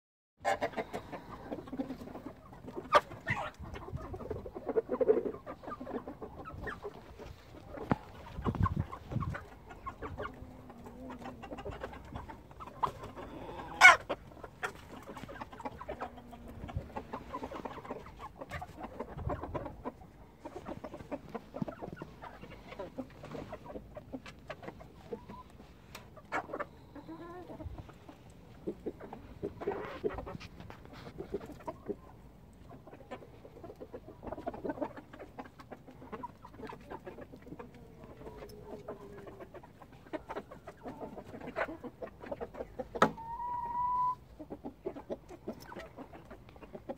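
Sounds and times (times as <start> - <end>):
chickens clucking: 0.4 - 46.9.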